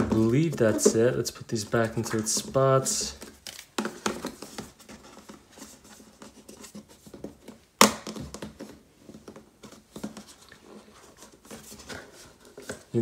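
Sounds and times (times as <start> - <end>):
cardboard box rustling: 0.0 - 7.7, 8.3 - 13.0.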